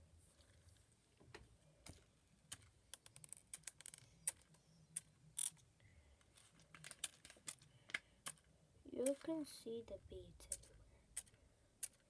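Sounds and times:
bead slime clicking and popping: 10.4 - 12.0.

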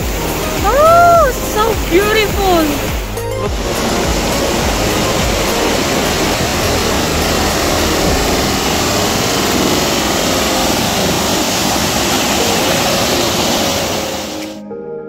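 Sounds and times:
stream rushing over boulders: 0.0 - 14.6.

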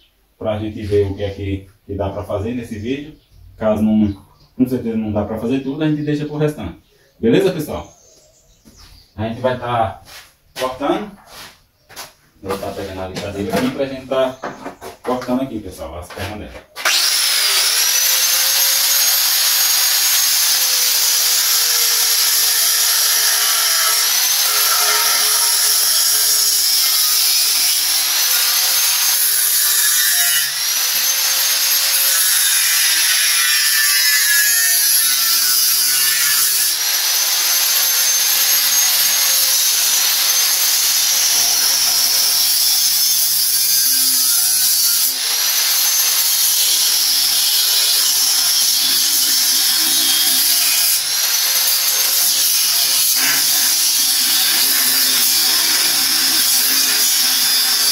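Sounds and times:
angle grinder cutting metal: 16.8 - 57.9.

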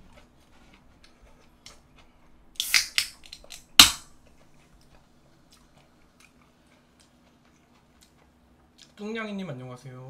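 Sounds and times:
can opening crack: 2.6 - 4.1.

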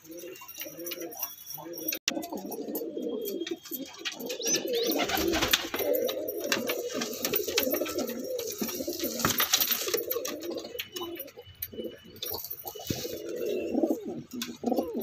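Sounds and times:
pigeons cooing: 0.0 - 15.0
clicks and rustles: 5.0 - 11.4.

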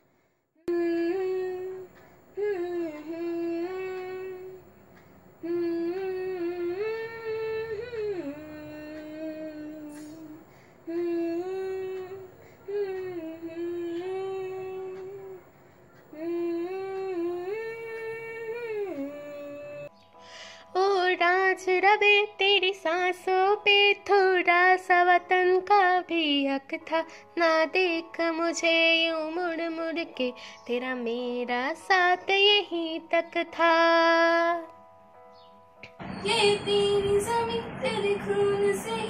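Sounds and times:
boy humming a melody: 0.7 - 4.7, 5.4 - 15.5, 16.1 - 19.9.

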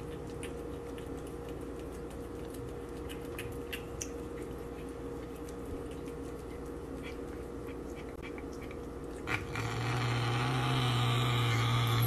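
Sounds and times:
cat crunching a treat: 0.0 - 9.5
steady hum: 0.0 - 12.0.

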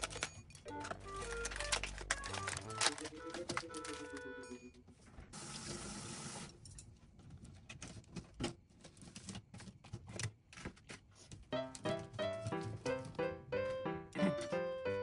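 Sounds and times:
kitchen tap running: 5.4 - 6.5.

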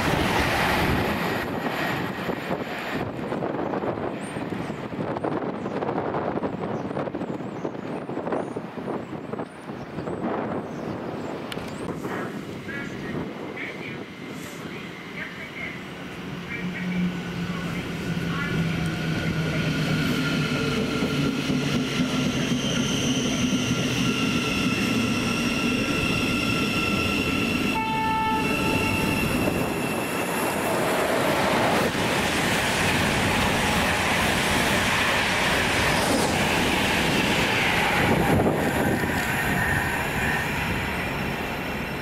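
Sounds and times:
train passing at speed: 0.0 - 42.0
train horn tone: 27.7 - 29.6.

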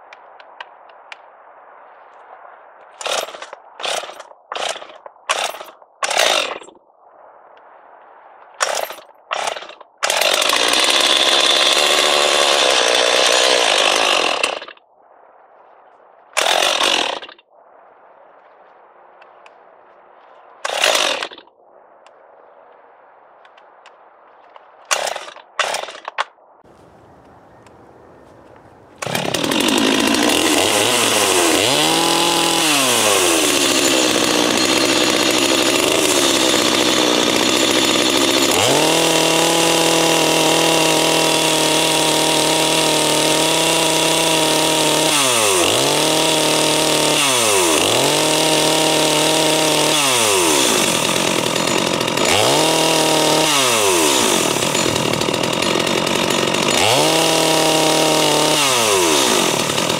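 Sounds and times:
chainsaw idling and revving: 3.0 - 6.6, 9.4 - 14.8, 16.4 - 17.3, 20.7 - 21.3, 26.7 - 59.9.

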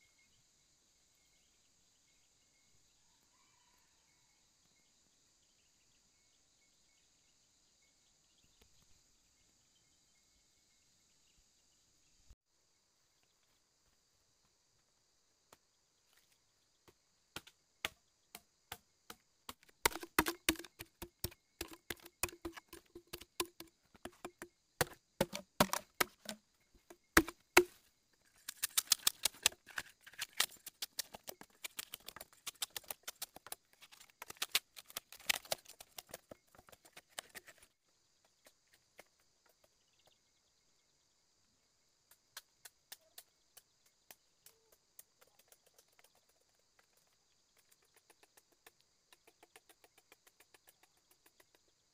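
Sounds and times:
machete chopping bamboo: 17.4 - 36.1.

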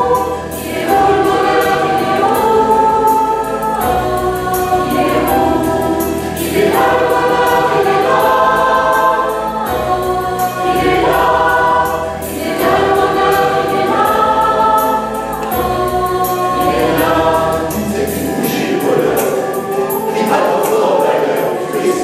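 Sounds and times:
mixed choir singing pop song: 0.0 - 22.0.

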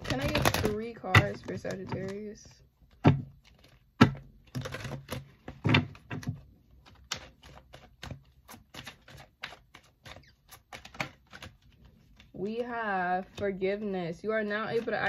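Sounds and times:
cards being shuffled: 3.4 - 13.5, 14.5 - 15.0.

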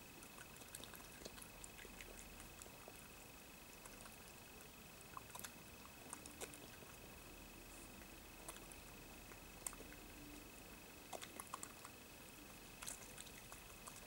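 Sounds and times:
faint high whine: 0.0 - 14.0
badger eating wet clicks: 0.2 - 7.0, 8.0 - 10.4, 11.0 - 12.0, 12.8 - 14.0.

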